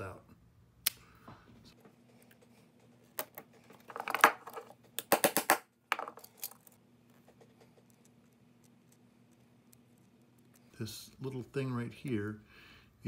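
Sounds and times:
small parts clicking and rattling: 3.0 - 12.4.

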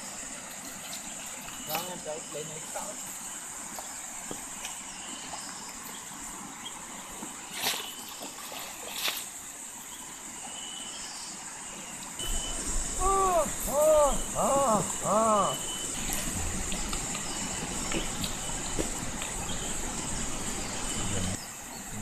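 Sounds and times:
constant high hiss: 0.0 - 22.0
net splashing into river: 7.5 - 9.6, 15.7 - 18.5
river rushing: 11.8 - 22.0.

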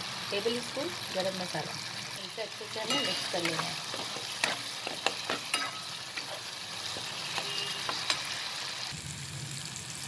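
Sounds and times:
food sizzling in hot oil: 0.0 - 10.0
metal spatula scraping pan: 2.8 - 8.6.

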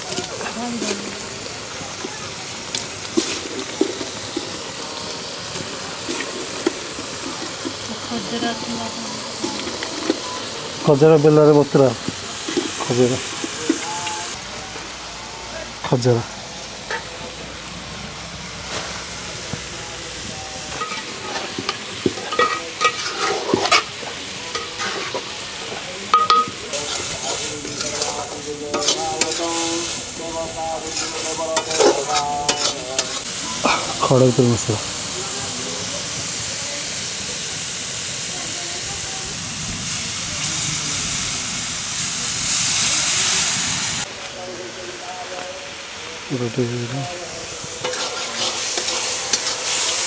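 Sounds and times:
food cooking hiss: 0.0 - 50.0
metal ladle scraping cooking pot: 20.7 - 25.4, 26.2 - 30.0, 30.9 - 33.3, 47.8 - 50.0.

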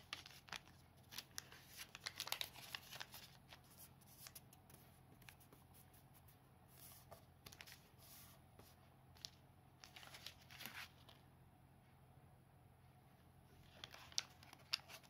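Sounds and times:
paper rustling and crinkling: 0.0 - 5.5, 6.8 - 11.2, 13.6 - 15.0
low steady hum: 0.0 - 15.0.

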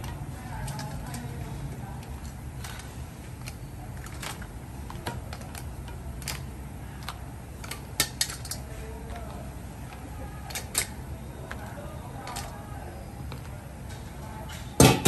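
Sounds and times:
low steady hum: 0.0 - 15.0
tongs and shell clacking on plate: 3.4 - 12.6.

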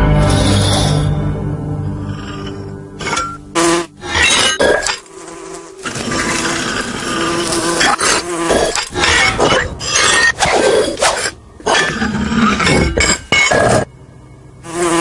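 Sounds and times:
flying insect buzzing: 3.5 - 9.0, 14.6 - 15.0.

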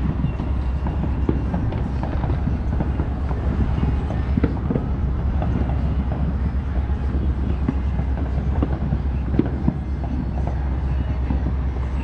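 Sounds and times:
distant fireworks popping: 0.0 - 12.0
steady low rumble: 0.0 - 12.0.

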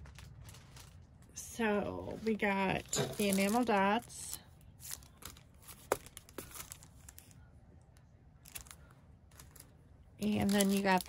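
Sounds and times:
plastic sleeve crinkling: 0.0 - 7.4, 8.4 - 11.0.

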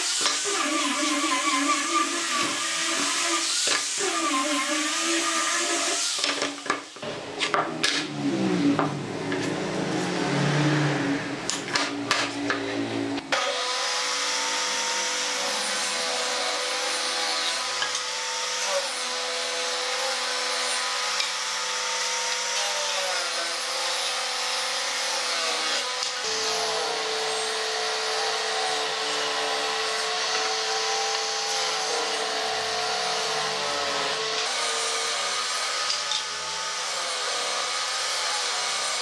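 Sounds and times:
angle grinder sanding wood: 0.0 - 39.0
table saw cutting wood: 0.0 - 39.0.

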